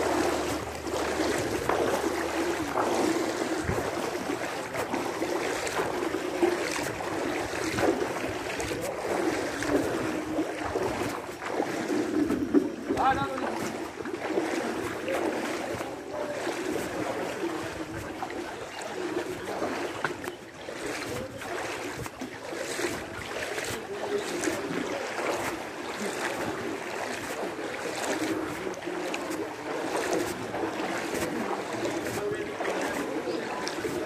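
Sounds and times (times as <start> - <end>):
people wading through water: 0.0 - 34.0.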